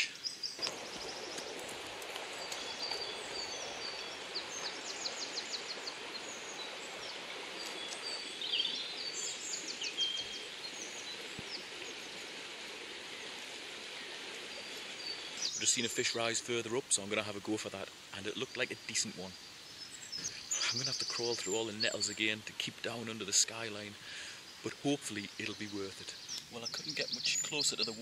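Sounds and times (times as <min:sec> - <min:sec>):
songbirds chirping and trilling: 0:00.0 - 0:28.0
river rushing over stones: 0:00.6 - 0:19.3.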